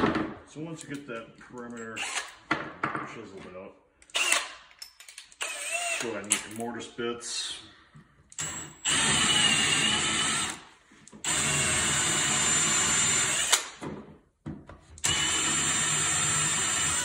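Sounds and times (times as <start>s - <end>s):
cordless drill boring into wood: 2.0s - 2.3s, 4.1s - 4.5s, 5.4s - 6.2s, 8.4s - 10.6s, 11.2s - 13.8s, 15.0s - 17.0s
drill click: 4.0s - 4.6s, 8.3s - 10.6s, 11.2s - 13.8s.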